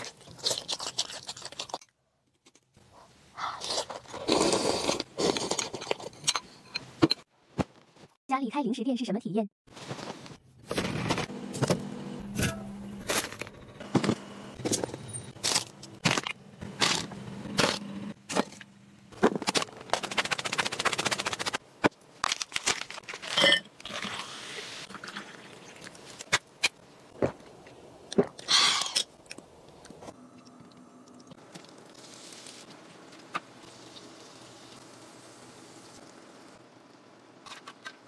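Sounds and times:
packaging crackling: 0:22.2 - 0:23.4
packaging rustling: 0:22.2 - 0:23.4.

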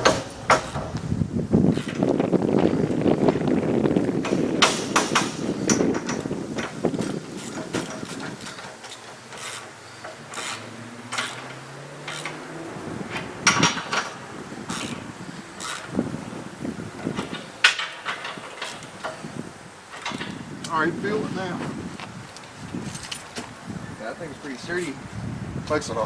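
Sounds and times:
metal cargo carrier clanking: 0:00.0 - 0:01.0, 0:04.2 - 0:21.8.

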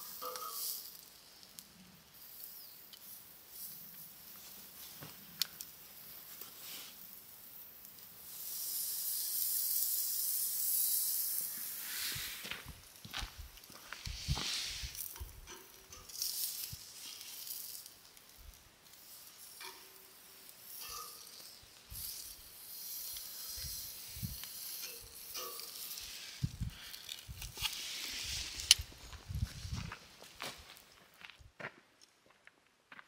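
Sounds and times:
steak sizzling on a grill: 0:00.0 - 0:28.8
tongs clicking on grill grate: 0:00.1 - 0:01.6, 0:15.0 - 0:27.8.

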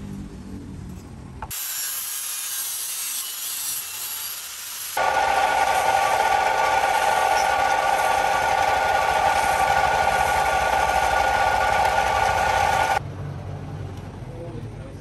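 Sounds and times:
wood lathe whine: 0:05.0 - 0:13.0.

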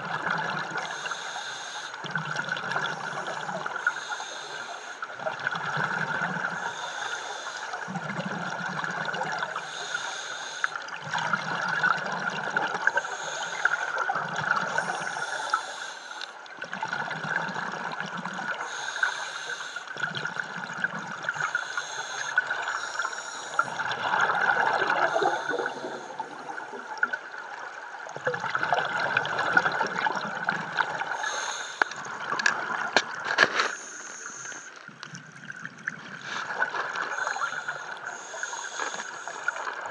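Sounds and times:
rumble of exhaled bubbles: 0:00.0 - 0:01.0, 0:02.0 - 0:03.8, 0:05.1 - 0:06.6, 0:07.8 - 0:09.6, 0:10.9 - 0:13.0, 0:14.0 - 0:15.4, 0:16.6 - 0:18.6, 0:20.0 - 0:21.5, 0:23.5 - 0:31.2, 0:34.8 - 0:38.2
hissing regulator inhale: 0:00.8 - 0:02.0, 0:02.9 - 0:05.1, 0:06.5 - 0:07.9, 0:09.6 - 0:10.8, 0:12.9 - 0:14.0, 0:14.7 - 0:16.4, 0:18.6 - 0:20.0, 0:21.3 - 0:23.9, 0:24.9 - 0:26.6, 0:31.1 - 0:32.0, 0:33.6 - 0:34.8, 0:36.3 - 0:39.8.

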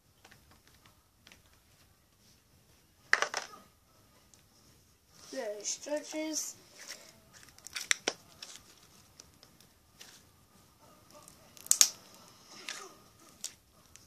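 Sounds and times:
slime sticky clicks and pops: 0:11.6 - 0:12.0.

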